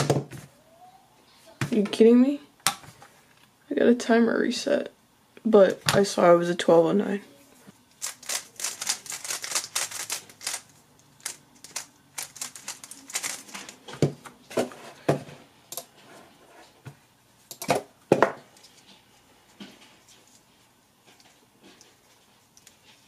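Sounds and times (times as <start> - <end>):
plastic cube clicking while turned: 8.0 - 13.5.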